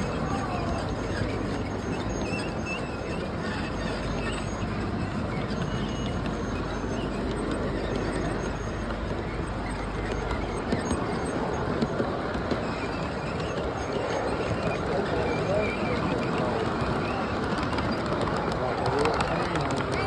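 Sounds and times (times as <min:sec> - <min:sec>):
faint squeaks: 0:00.0 - 0:20.0
model train wheels rumbling: 0:00.0 - 0:20.0.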